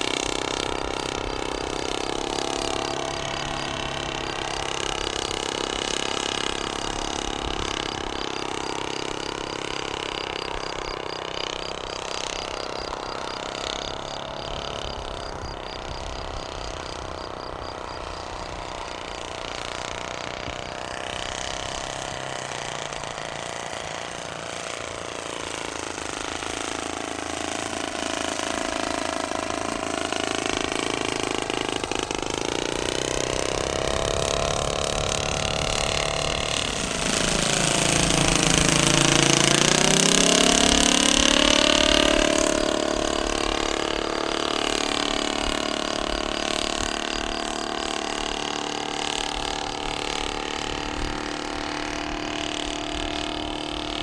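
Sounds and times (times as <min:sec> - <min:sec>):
model aircraft engine flying: 0:00.0 - 0:54.0.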